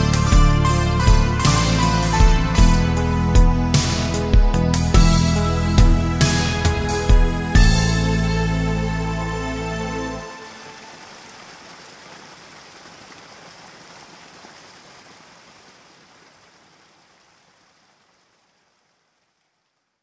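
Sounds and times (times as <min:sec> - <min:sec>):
music: 0:00.0 - 0:10.9
rain falling: 0:06.4 - 0:20.0.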